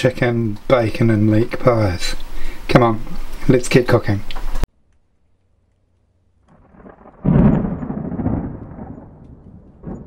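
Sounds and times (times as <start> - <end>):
deep boom: 6.6 - 10.0
low rumble: 6.6 - 10.0.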